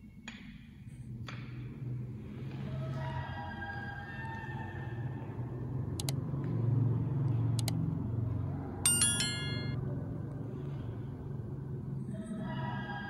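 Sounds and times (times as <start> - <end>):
double mouse clicks: 7.6 - 7.8
bright bell ding: 8.9 - 9.8.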